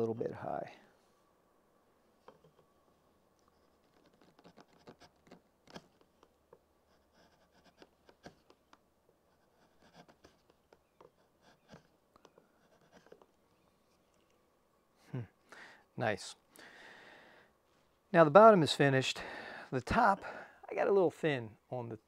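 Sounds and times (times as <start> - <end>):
gouge scraping wood: 3.4 - 6.3, 6.9 - 13.4.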